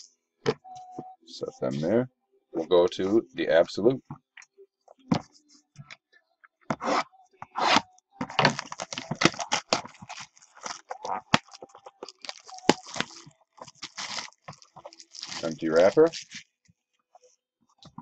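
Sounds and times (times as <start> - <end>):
plastic wrap crinkling and tearing: 7.6 - 16.7.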